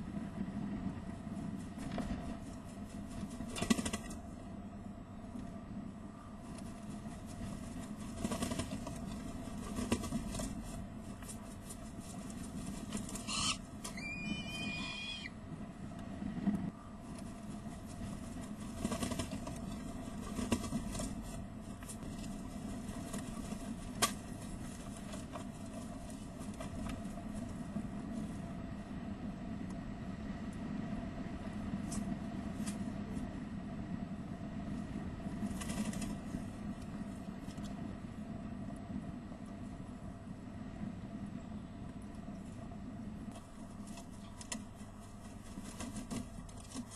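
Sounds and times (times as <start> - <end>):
steady low hum: 0.0 - 46.9
birds flapping wings: 1.6 - 4.3, 6.5 - 15.3, 17.3 - 27.7, 35.4 - 36.4, 43.4 - 46.9.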